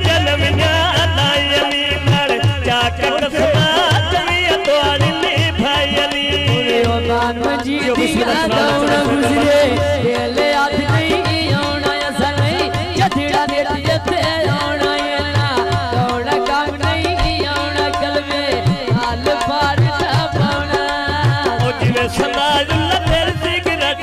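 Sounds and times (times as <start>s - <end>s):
woman singing into microphone: 6.8s - 22.8s.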